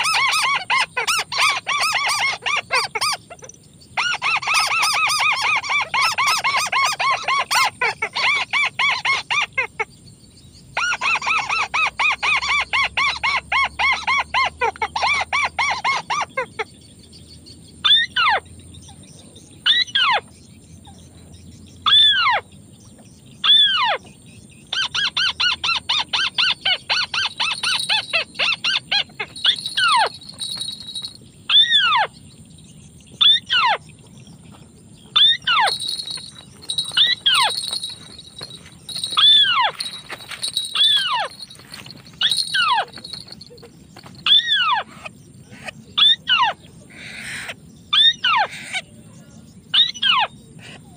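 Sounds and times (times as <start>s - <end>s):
crake chattering calls: 0.0s - 50.9s
loud falling bird calls: 26.0s - 32.1s, 35.0s - 44.9s.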